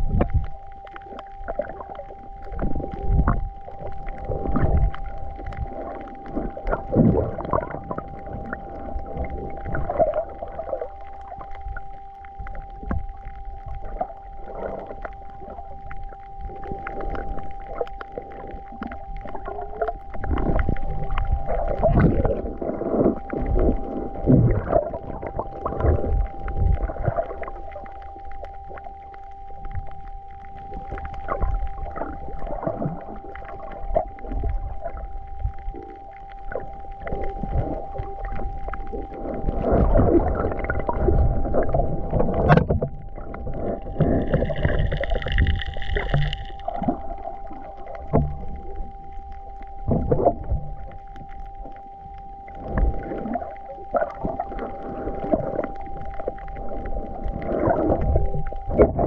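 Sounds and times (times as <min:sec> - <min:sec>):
bubbling: 0:00.0 - 0:59.0
underwater high hum: 0:00.0 - 0:59.0
underwater thuds and knocks: 0:39.6 - 0:47.0.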